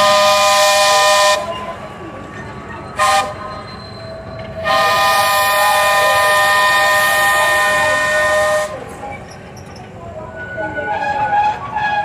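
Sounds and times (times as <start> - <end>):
locomotive horn blasts: 0.0 - 1.7, 3.0 - 3.6, 4.6 - 8.8.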